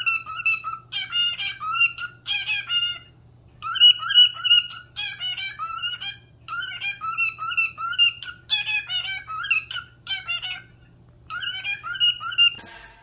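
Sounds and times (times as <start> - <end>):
cockatiel whistling: 0.0 - 12.7.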